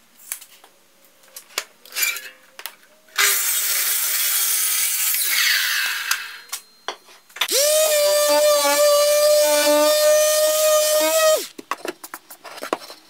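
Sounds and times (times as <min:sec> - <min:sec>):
miter saw blade spinning down: 0:07.5 - 0:11.5
palm sander on wood: 0:07.5 - 0:11.5.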